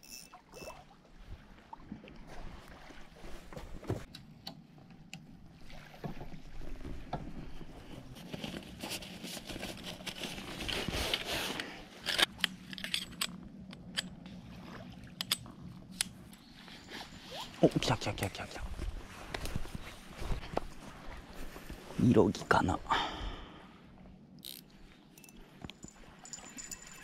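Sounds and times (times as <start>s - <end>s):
fabric sheet rustling and scraping: 7.6s - 12.0s, 16.5s - 17.7s, 18.7s - 22.0s.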